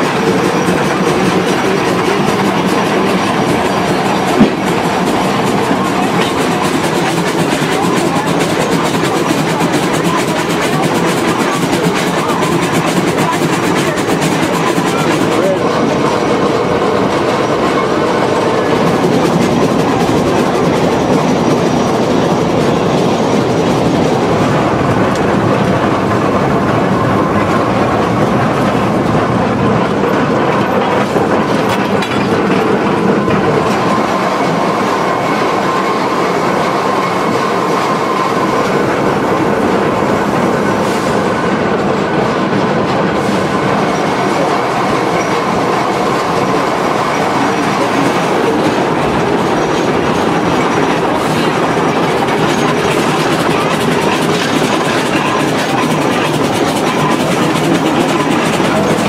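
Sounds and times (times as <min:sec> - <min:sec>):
train wheels clattering on rails: 0:00.0 - 0:59.0.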